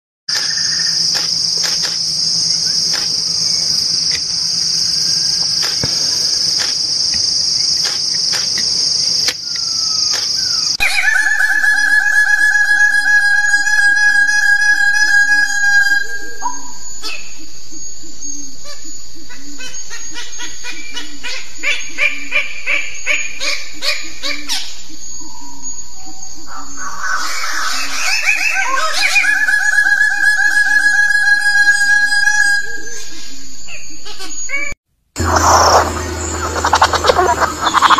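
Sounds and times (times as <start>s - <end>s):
sharp clicks: 0.3s - 4.4s
steady high whistling tone: 0.3s - 19.6s, 23.6s - 34.0s, 35.2s - 37.9s
high insect buzz: 0.3s - 25.8s, 35.2s - 37.9s
bird calls: 0.3s - 37.9s.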